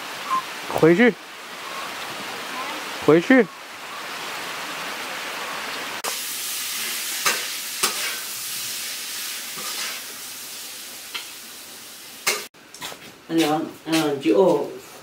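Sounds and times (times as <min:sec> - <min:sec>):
running water: 0:00.0 - 0:06.2
fire crackles: 0:00.0 - 0:12.8
wood stove hissing: 0:06.0 - 0:12.5.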